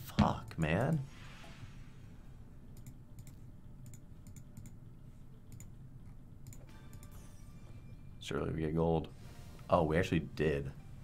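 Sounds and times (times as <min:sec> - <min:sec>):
faint low hum: 0:00.0 - 0:11.0
computer mouse clicks: 0:02.8 - 0:04.8, 0:05.5 - 0:05.7, 0:06.4 - 0:07.1.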